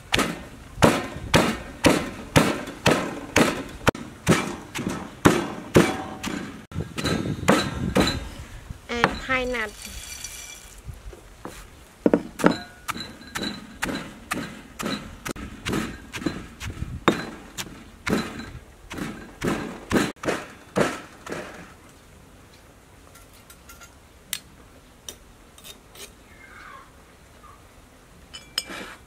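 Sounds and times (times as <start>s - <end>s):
pestle pounding in stone mortar: 0.1s - 8.3s, 12.1s - 21.6s.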